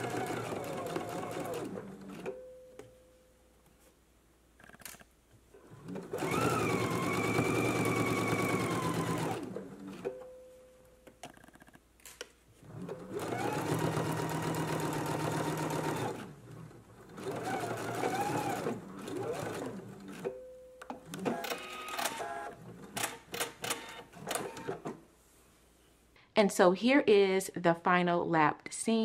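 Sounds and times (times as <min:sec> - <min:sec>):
sewing machine motor whine: 0:05.8 - 0:10.0, 0:17.2 - 0:20.2, 0:21.2 - 0:22.6.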